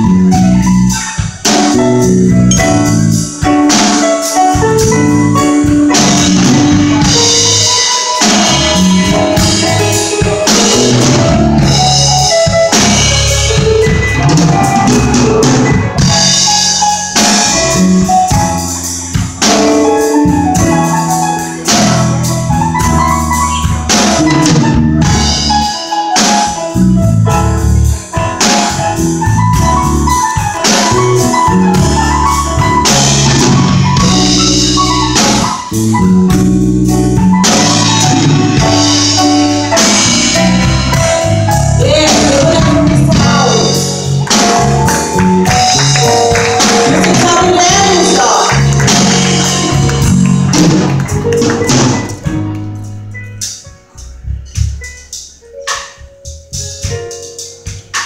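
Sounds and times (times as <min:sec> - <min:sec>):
drum kit: 0:00.0 - 0:58.0
mallet percussion: 0:37.3 - 0:53.0
woman singing: 0:41.8 - 0:43.7, 0:46.8 - 0:48.6.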